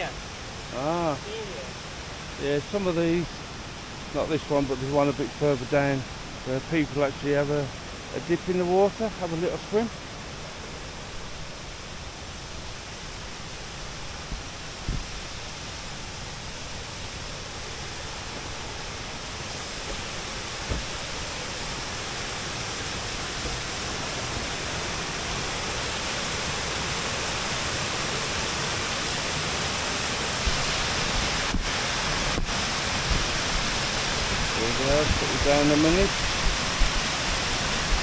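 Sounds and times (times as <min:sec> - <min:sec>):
waterfall rushing: 0:00.0 - 0:38.0.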